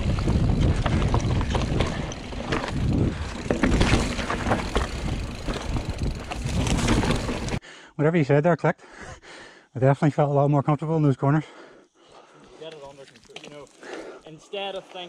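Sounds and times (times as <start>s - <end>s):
bike rattling: 0.0s - 7.6s
tyres crunching over stones: 0.0s - 7.6s, 12.7s - 14.0s
wind on microphone: 0.0s - 7.6s.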